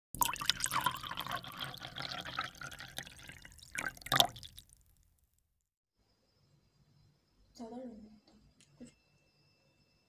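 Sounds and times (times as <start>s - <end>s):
milkshake pouring into glass: 0.2s - 4.8s.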